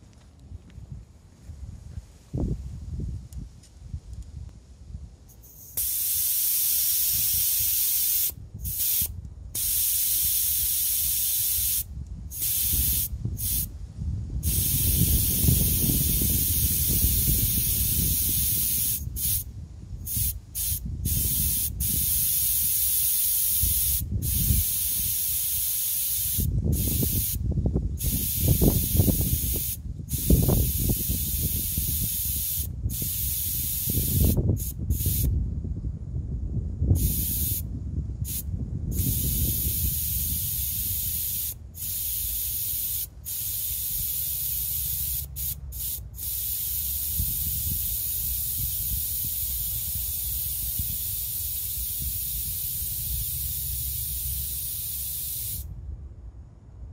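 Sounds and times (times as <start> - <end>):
air hissing from tire valve: 5.3 - 13.8, 14.4 - 35.4, 36.9 - 55.7
low rumble: 55.7 - 56.9.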